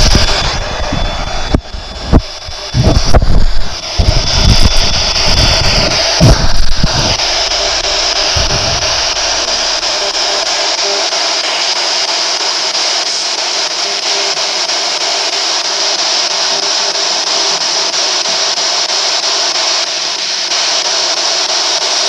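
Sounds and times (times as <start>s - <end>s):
soft low bump: 0.0s - 10.1s
radio static hiss: 0.0s - 22.0s.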